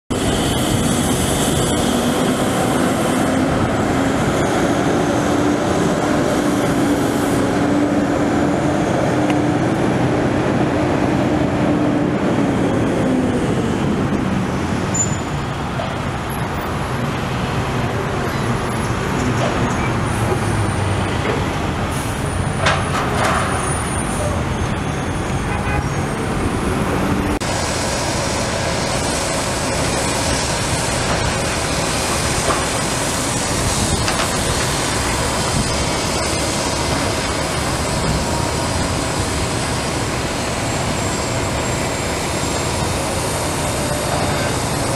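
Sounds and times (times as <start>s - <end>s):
heavy diesel machinery running: 0.1s - 44.9s.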